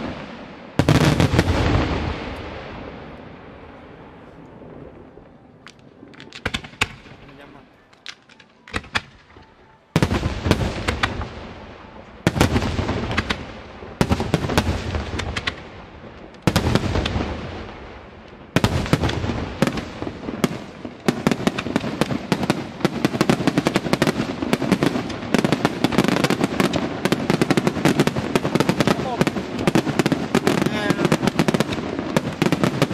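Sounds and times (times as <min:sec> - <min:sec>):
firework crackling: 0:00.0 - 0:32.9
firework shells bursting: 0:05.6 - 0:11.3, 0:12.3 - 0:32.9.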